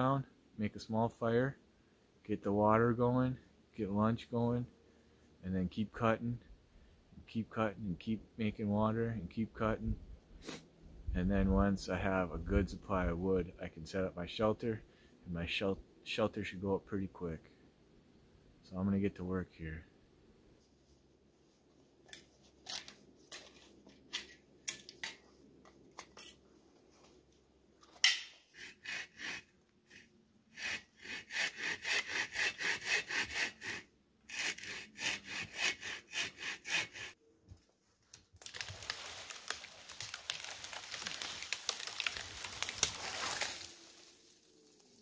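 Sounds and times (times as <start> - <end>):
hand saw cutting wood: 28.2 - 37.2
wood cracking: 38.0 - 45.0.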